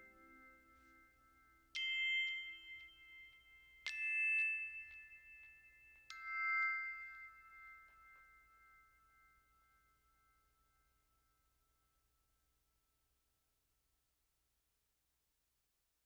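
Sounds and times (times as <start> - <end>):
bell-like chime chords: 0.0 - 10.6.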